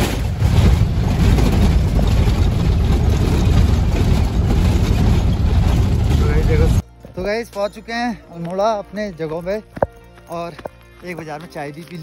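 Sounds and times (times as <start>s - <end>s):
road noise: 0.0s - 6.8s
vehicle engine rumble: 0.0s - 6.8s.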